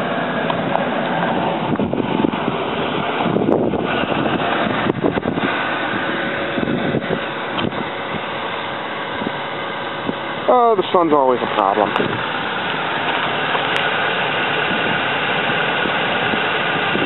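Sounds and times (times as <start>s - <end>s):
vehicle running: 0.0s - 17.0s
wind noise on microphone: 0.6s - 8.4s, 9.1s - 10.3s, 11.8s - 12.4s, 13.1s - 17.0s.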